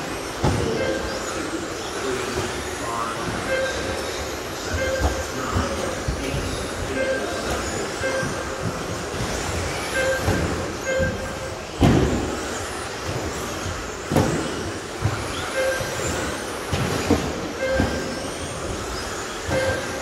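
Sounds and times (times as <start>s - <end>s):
short electronic beeps: 4.7s - 5.6s, 7.0s - 8.6s
sharp knocks of cars landing: 10.2s - 15.3s.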